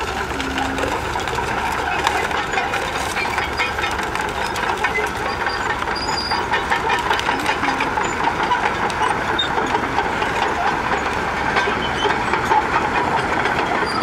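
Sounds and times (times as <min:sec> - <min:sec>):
bulldozer engine running: 0:00.0 - 0:14.0
debris crackling under crushing: 0:00.0 - 0:14.0
steel tracks clanking: 0:00.0 - 0:14.0.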